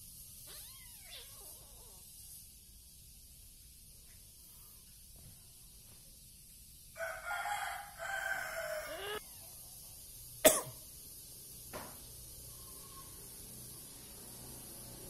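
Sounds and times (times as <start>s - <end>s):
rooster crowing: 7.0s - 9.5s.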